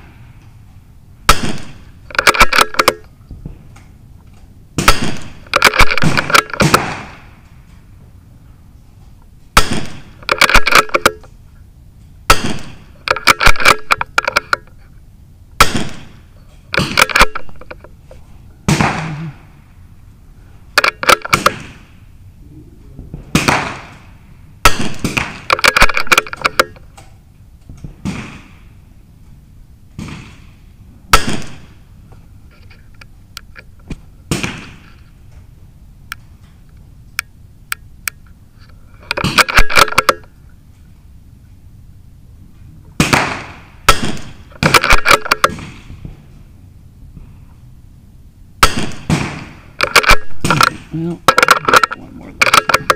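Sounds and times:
rifle shots cracking: 1.3s - 3.0s, 4.8s - 7.4s, 9.6s - 11.3s, 12.3s - 14.7s, 15.6s - 17.8s, 18.7s - 19.5s, 20.7s - 22.0s, 23.3s - 26.8s, 27.9s - 28.7s, 31.1s - 31.8s, 34.3s - 34.9s, 39.1s - 40.3s, 43.0s - 46.0s, 48.6s - 52.9s.

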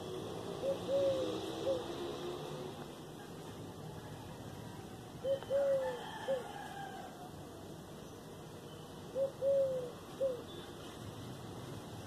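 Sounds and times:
dove cooing: 0.0s - 2.9s, 5.2s - 7.3s, 9.1s - 10.7s.

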